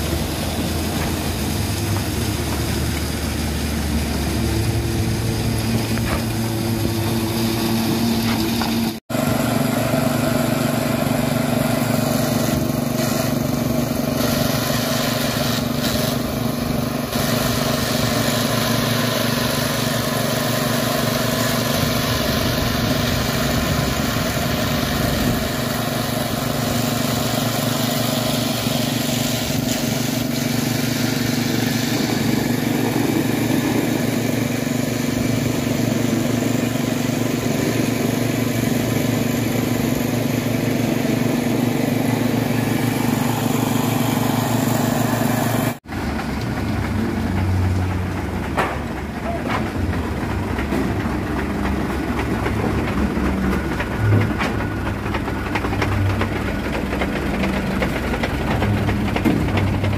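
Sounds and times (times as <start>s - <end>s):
small petrol engine running: 0.0s - 59.9s.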